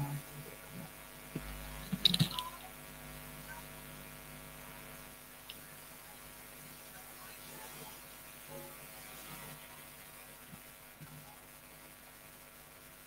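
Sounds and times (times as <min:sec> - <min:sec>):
electrical mains hum: 0:00.0 - 0:13.0
sharp clicks and knocks: 0:01.4 - 0:02.6.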